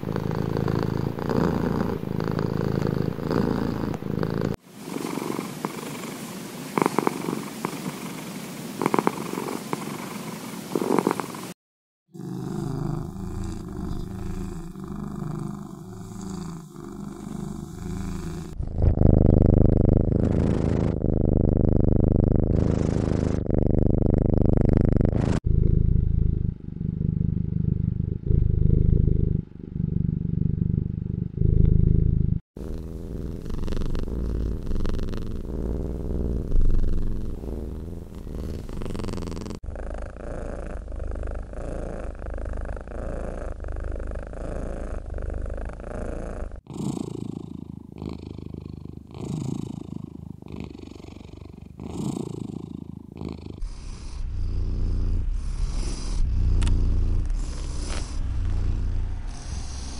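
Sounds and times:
cats purring: 0.0s - 59.9s.

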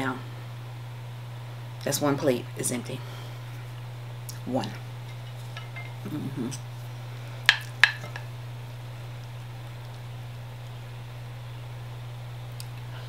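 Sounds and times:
steady low hum: 0.0s - 13.0s
cutlery clinking on a plate: 5.1s - 6.1s.

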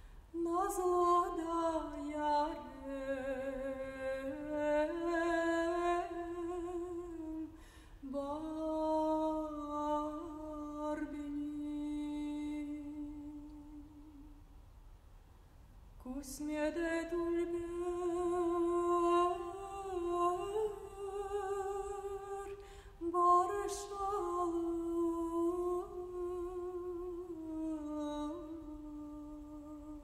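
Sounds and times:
woman singing unaccompanied: 0.3s - 14.3s, 16.0s - 30.0s.

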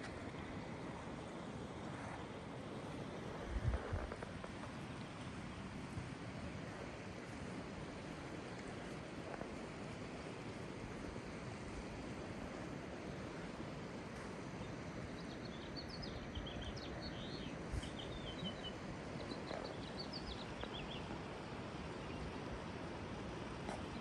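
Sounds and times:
steady rushing noise: 0.0s - 14.6s
songbird chirping: 14.6s - 21.2s.

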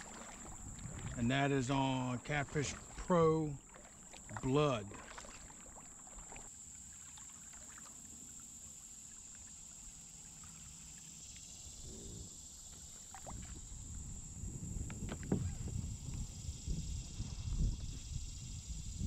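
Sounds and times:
paddle dips in water: 0.0s - 11.0s, 12.7s - 14.2s.

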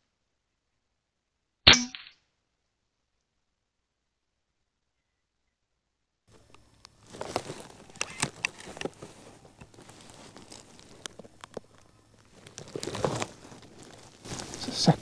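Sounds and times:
leaves and clothing rustling: 6.3s - 15.0s.

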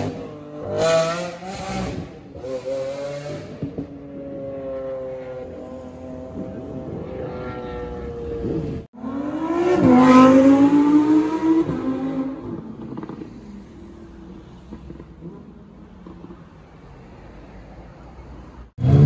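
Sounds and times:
sports car revving and accelerating: 0.0s - 14.0s.

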